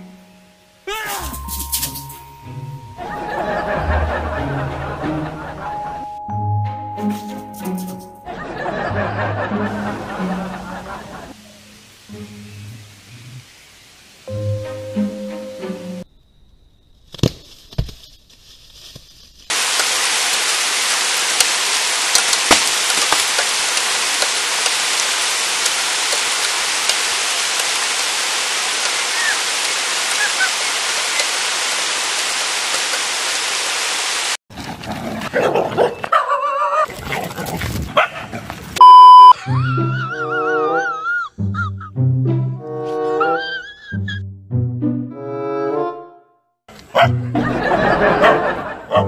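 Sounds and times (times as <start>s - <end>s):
steady hiss: 9.7s - 16.0s, 18.4s - 34.4s
test-tone beep: 38.8s - 39.4s.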